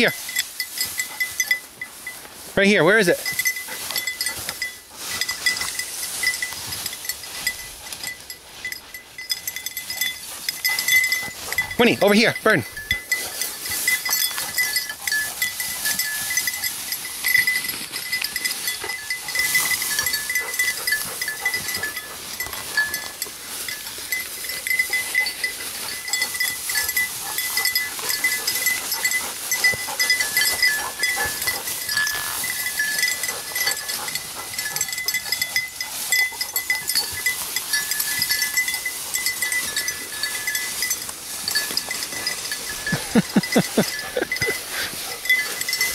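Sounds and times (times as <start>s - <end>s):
dog collar bell jingling: 0.0s - 45.9s
dry brush crackling and rustling: 0.0s - 45.9s.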